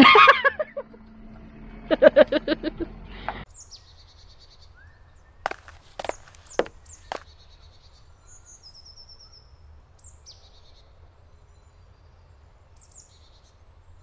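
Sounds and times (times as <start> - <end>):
small birds chirping: 3.2 - 14.0.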